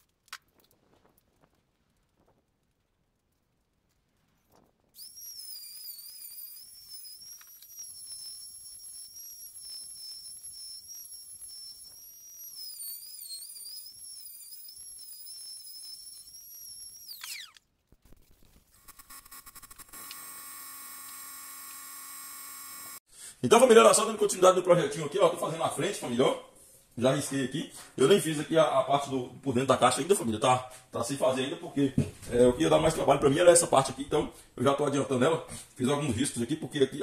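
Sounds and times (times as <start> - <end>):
router high whine: 5.0 - 17.6, 18.9 - 23.0.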